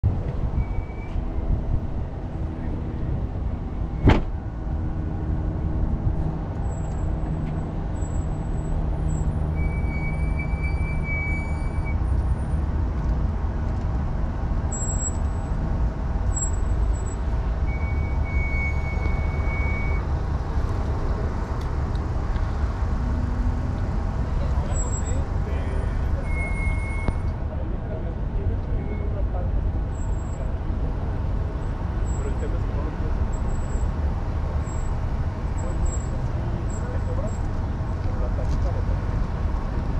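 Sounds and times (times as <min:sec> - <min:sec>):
road traffic rumble: 0:00.0 - 0:39.9
sharp knock: 0:04.0 - 0:04.4.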